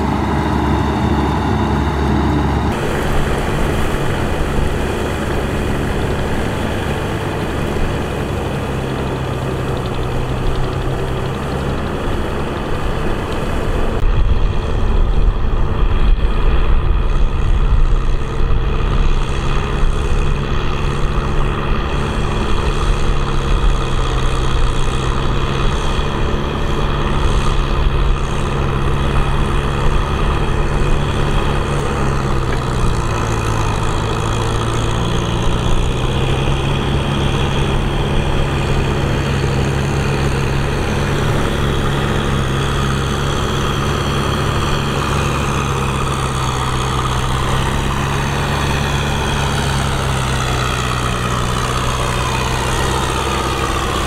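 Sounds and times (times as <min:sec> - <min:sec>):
tractor engine running: 0:00.0 - 0:54.0.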